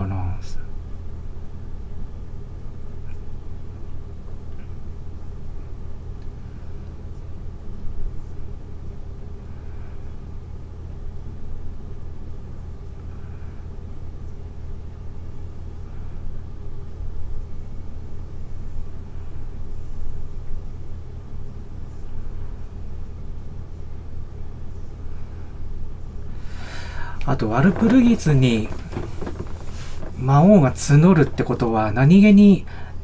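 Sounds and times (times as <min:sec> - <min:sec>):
low room noise rumble: 0:00.0 - 0:33.0.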